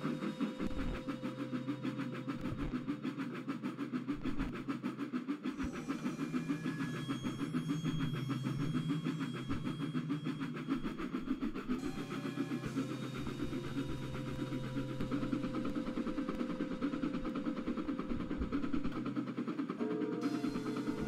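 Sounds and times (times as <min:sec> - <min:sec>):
low hum: 0:00.0 - 0:21.0
steam locomotive chuffing: 0:00.0 - 0:21.0.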